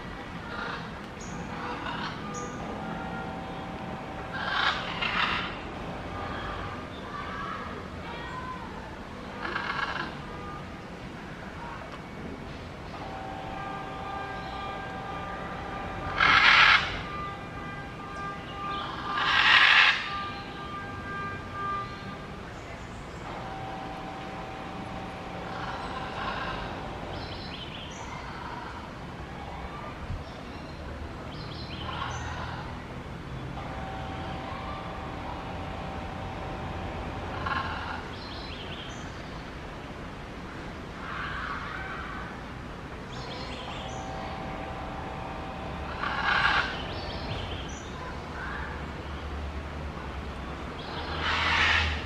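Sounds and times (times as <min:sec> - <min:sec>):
steady low rumble: 0:33.6 - 0:38.8, 0:42.9 - 0:47.7.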